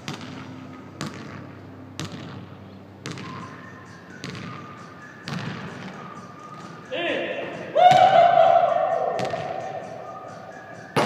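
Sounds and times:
basketball bouncing on gym floor: 0:00.0 - 0:03.4, 0:07.9 - 0:08.2, 0:09.2 - 0:09.6.

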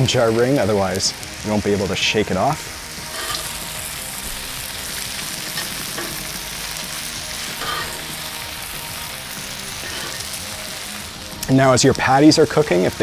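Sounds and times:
meat sizzling on a griddle: 0:00.0 - 0:13.0
metal spatula scraping griddle: 0:03.1 - 0:03.6, 0:05.5 - 0:06.4, 0:07.5 - 0:08.4, 0:09.6 - 0:10.4.

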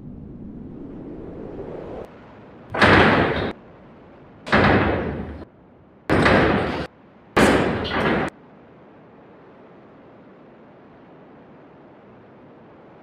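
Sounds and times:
low rumble: 0:00.0 - 0:02.8
loud ringing bangs: 0:02.7 - 0:03.6, 0:04.5 - 0:05.5, 0:06.1 - 0:08.3.

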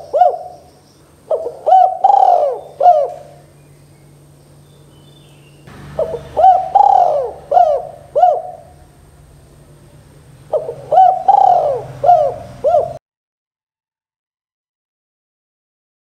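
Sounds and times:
dove cooing: 0:00.0 - 0:00.7, 0:01.3 - 0:03.5, 0:05.8 - 0:13.0.

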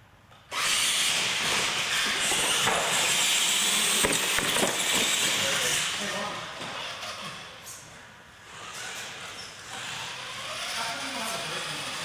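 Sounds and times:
toy truck motors hissing: 0:00.5 - 0:04.0, 0:08.4 - 0:12.0.

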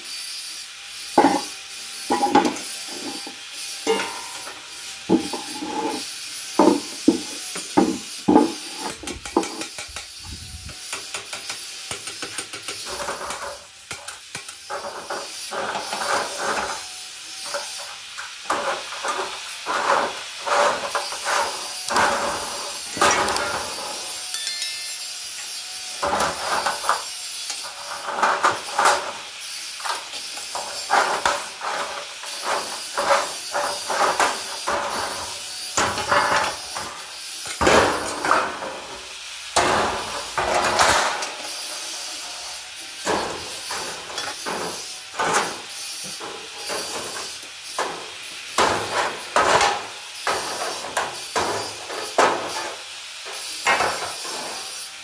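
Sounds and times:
thin steel sheet clanking: 0:03.9 - 0:06.0.

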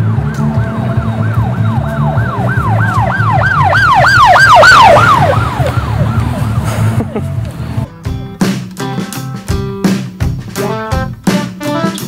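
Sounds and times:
alarm siren whooping: 0:00.0 - 0:07.2.

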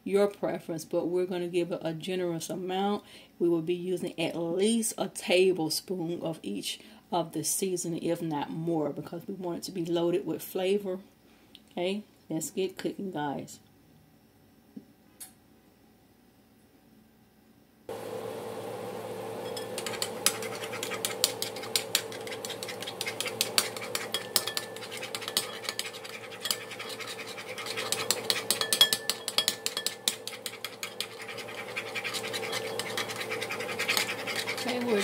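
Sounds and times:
steady low hum: 0:17.9 - 0:35.0
utensil beating eggs in bowl: 0:17.9 - 0:35.0.

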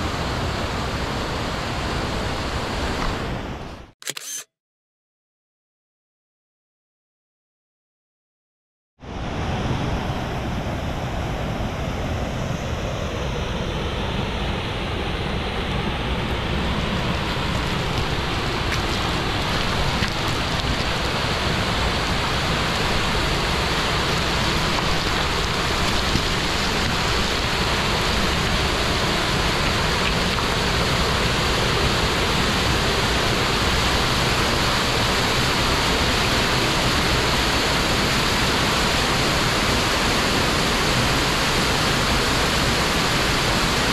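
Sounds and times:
water rushing down stream cascade: 0:00.0 - 0:03.4, 0:14.2 - 0:43.9.

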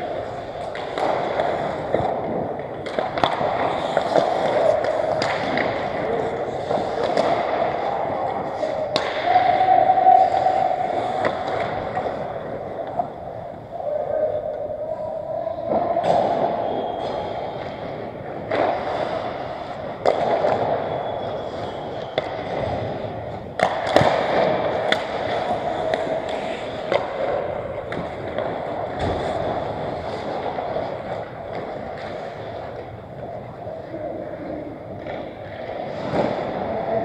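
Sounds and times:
ice skates scraping: 0:00.0 - 0:13.8, 0:15.0 - 0:37.0
hockey sticks and puck clacking: 0:00.0 - 0:37.0.

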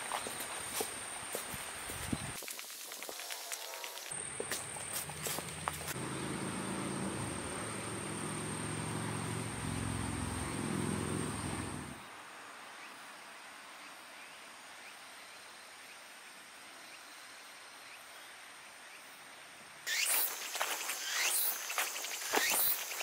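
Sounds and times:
insect buzz: 0:00.0 - 0:12.1, 0:19.9 - 0:23.0
faint insect chirps: 0:00.0 - 0:23.0.

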